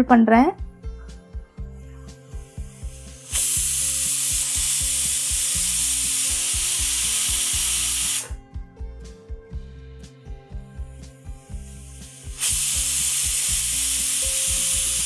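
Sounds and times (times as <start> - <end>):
pressure cooker whistling: 3.2 - 8.4, 12.1 - 15.0.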